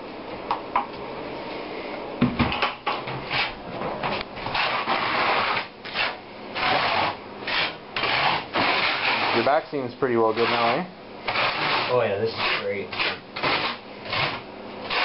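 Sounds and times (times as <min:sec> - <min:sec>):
knock: 0:02.2 - 0:02.8
trowel scraping mortar: 0:03.3 - 0:03.6, 0:04.5 - 0:09.6, 0:10.2 - 0:15.0.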